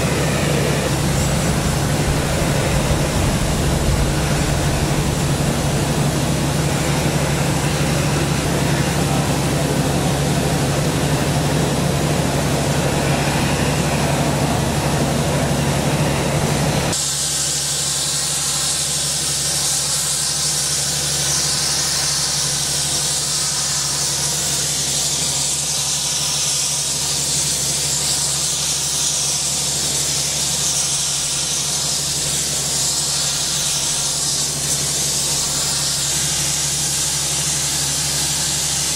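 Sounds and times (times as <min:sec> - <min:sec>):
low steady hum: 0:00.0 - 0:11.3
flame-spray gun high hiss: 0:00.0 - 0:38.9
spray gun rushing flame: 0:00.0 - 0:38.9.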